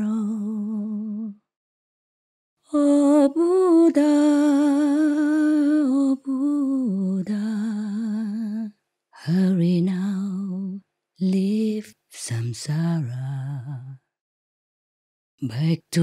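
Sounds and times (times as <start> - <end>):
woman singing unaccompanied: 0.0 - 1.4, 2.6 - 14.0.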